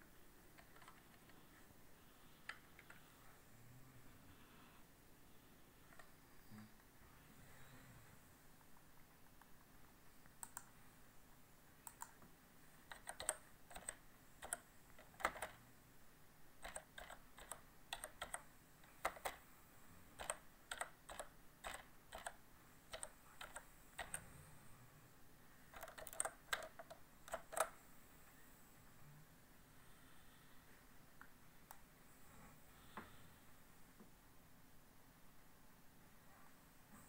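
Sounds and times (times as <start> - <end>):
keyboard typing clicks: 0.6 - 1.4, 10.2 - 10.8, 11.8 - 12.2, 12.8 - 15.6, 16.6 - 19.4, 20.2 - 24.3, 25.7 - 27.8.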